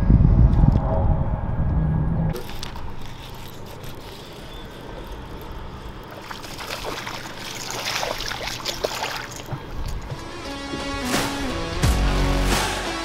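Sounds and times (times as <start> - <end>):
water splashing and trickling: 2.3 - 11.0.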